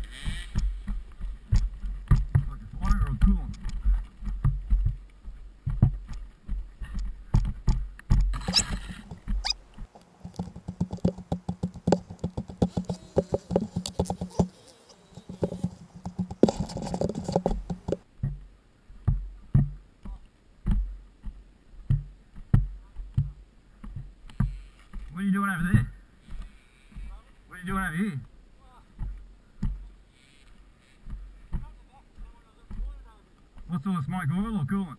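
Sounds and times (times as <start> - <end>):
bike rattling over bumps: 6.8 - 18.1
dirt bike engine running: 10.2 - 14.5.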